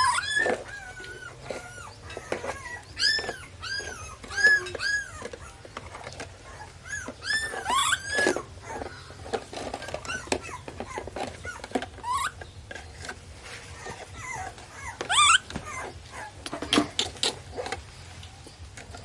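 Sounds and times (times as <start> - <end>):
baby monkey whimpering coos: 6.5 - 8.8, 14.2 - 16.4.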